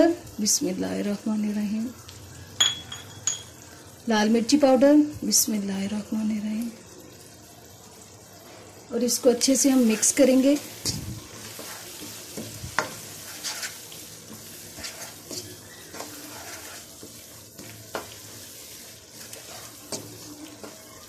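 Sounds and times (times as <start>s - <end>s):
oil sizzling in a wok: 0.0s - 21.0s
spatula tapping and scraping pan: 10.8s - 21.0s.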